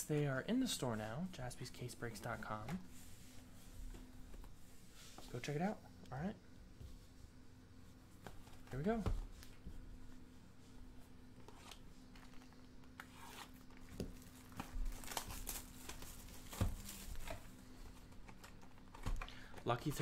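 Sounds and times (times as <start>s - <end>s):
cellophane crinkling and tearing: 11.7s - 17.4s.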